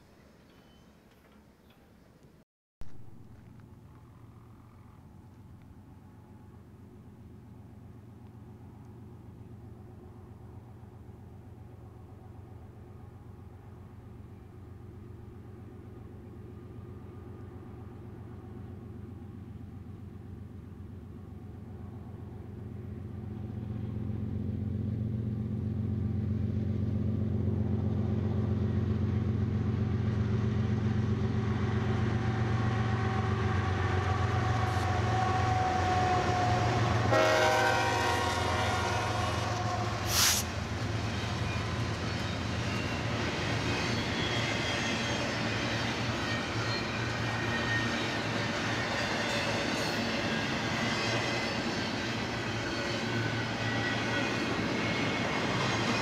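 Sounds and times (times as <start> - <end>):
diesel locomotive engine drone: 2.8 - 56.0
train wheels on rails: 21.5 - 56.0
train horn blast: 31.6 - 40.4.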